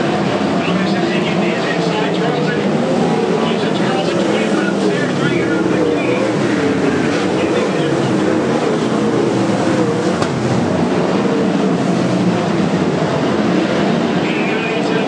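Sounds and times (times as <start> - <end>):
race car engines at low revs: 0.0 - 15.0.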